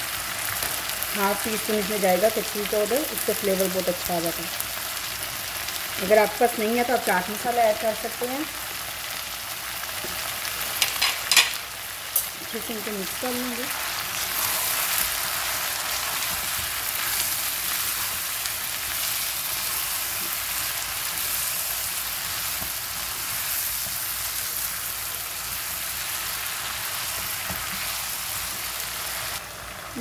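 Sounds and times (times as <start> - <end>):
chicken frying in hot oil: 0.0 - 30.0.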